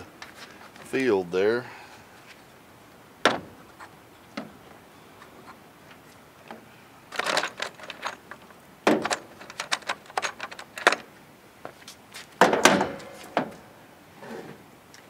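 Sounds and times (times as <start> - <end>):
metal parts rattling in plastic case: 7.1 - 11.0.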